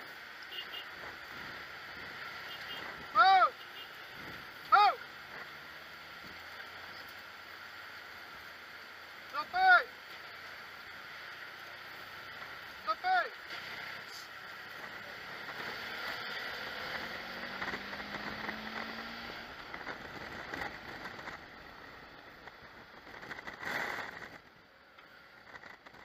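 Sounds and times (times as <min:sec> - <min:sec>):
wind and road noise: 0:00.0 - 0:26.0.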